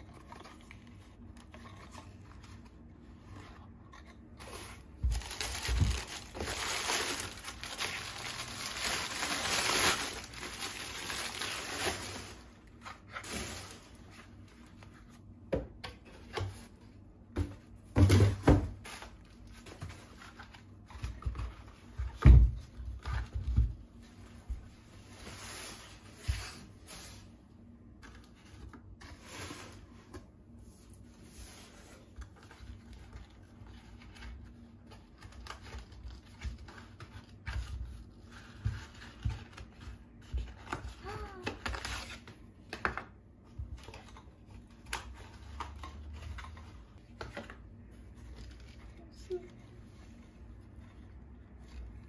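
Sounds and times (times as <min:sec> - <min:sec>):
packing paper rustling: 0:00.0 - 0:15.3.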